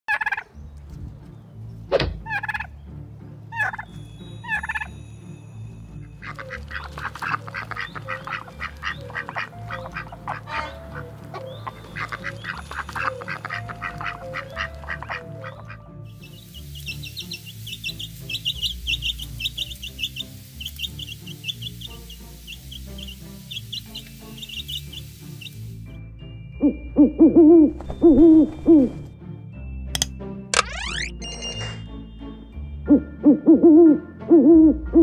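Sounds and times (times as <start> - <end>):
turkeys gobbling: 0.1 - 0.5, 2.2 - 2.7, 3.5 - 3.9, 6.2 - 15.8
ducks quacking rapidly: 6.2 - 15.8.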